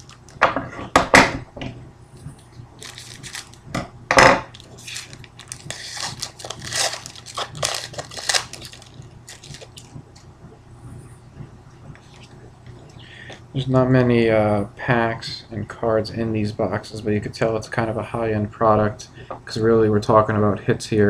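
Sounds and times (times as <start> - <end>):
foil wrapper tearing and crinkling: 0.0 - 0.4, 2.8 - 3.6, 4.5 - 9.9.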